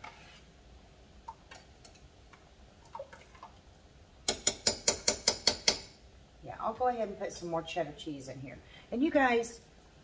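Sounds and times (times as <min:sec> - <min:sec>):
spoon clicking on cooker rim: 0:04.3 - 0:05.9.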